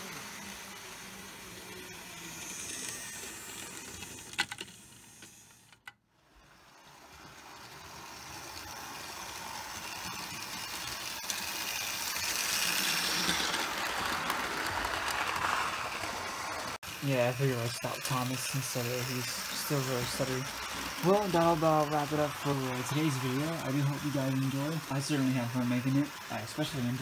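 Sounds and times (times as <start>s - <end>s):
model trains rattling on rails: 6.4s - 27.0s.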